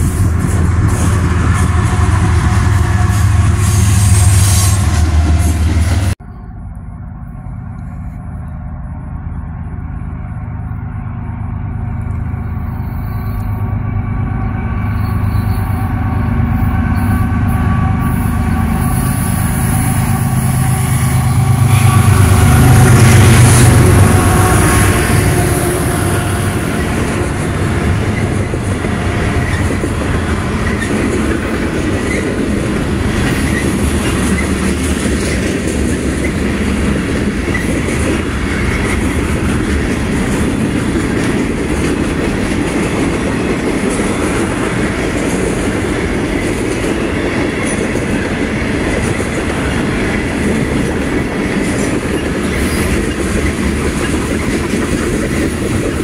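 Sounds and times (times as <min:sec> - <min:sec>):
diesel locomotive engine drone: 0:00.0 - 0:56.0
wheel and rail clatter: 0:26.6 - 0:56.0.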